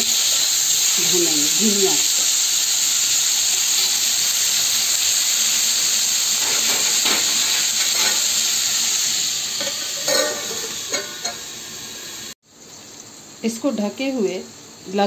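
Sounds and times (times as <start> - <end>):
vegetables sizzling in oil: 0.0 - 15.0
steel lid clanking onto pan: 6.4 - 8.4, 9.6 - 11.5.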